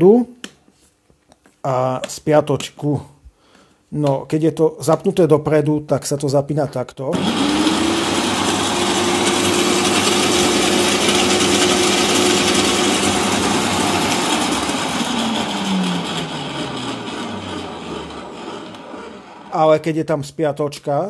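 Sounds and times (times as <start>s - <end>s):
shredder motor humming: 7.1s - 19.7s.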